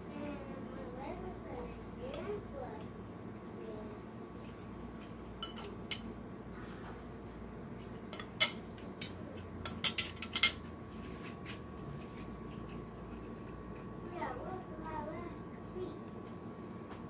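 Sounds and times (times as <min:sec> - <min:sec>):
cutlery clinking on a plate: 0:05.4 - 0:06.0, 0:08.1 - 0:10.7.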